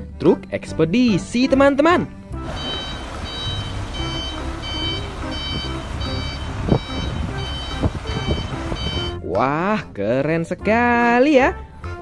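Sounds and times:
truck engine rumble: 0:02.4 - 0:09.2
reversing alarm beeping: 0:02.5 - 0:09.2.

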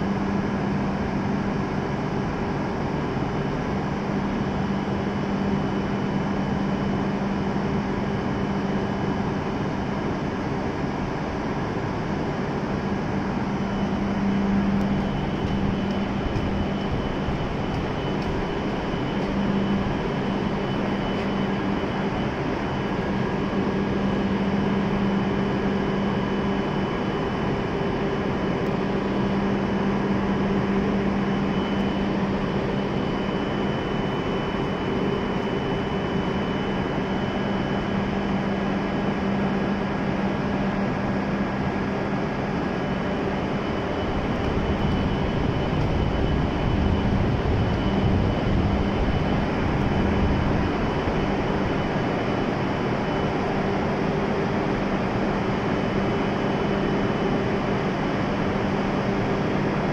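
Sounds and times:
faint high whine: 0:00.0 - 0:59.9
train equipment humming: 0:12.3 - 0:23.8.

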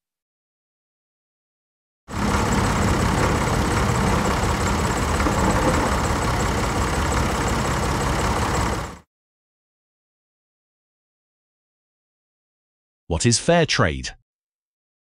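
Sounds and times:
tractor engine running: 0:02.1 - 0:09.0.

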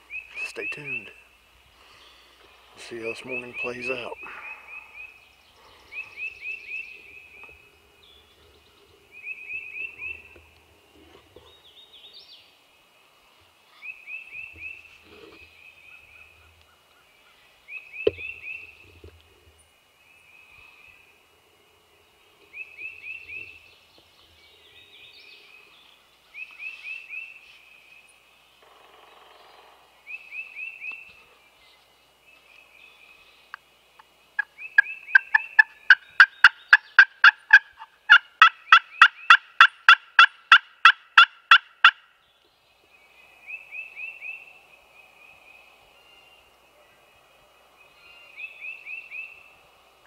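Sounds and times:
distant turkey gobbles: 0:34.4 - 0:42.0.

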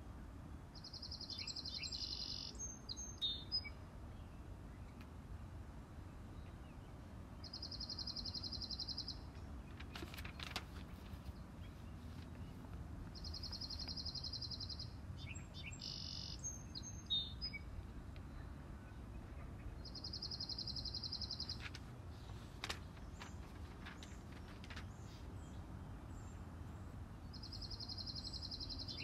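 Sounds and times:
songbird trilling: 0:00.8 - 0:03.8, 0:07.4 - 0:09.3, 0:12.5 - 0:17.7, 0:19.8 - 0:21.6, 0:27.3 - 0:29.0
bird chirping: 0:00.8 - 0:05.0, 0:06.3 - 0:29.0.

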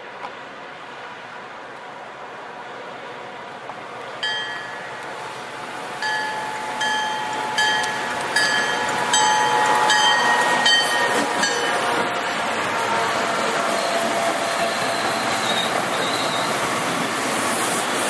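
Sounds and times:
train rumbling: 0:00.0 - 0:18.0
locomotive bell ringing: 0:04.2 - 0:14.6.

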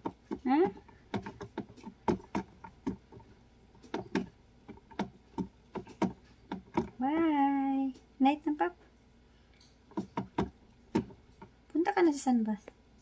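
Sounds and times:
hamster clicking on plastic cage: 0:00.0 - 0:07.4, 0:09.9 - 0:11.6.

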